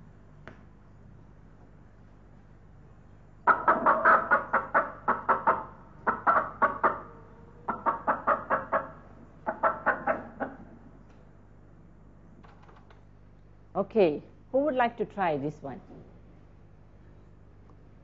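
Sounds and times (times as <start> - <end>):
recorded hen clucking: 3.5 - 11.0.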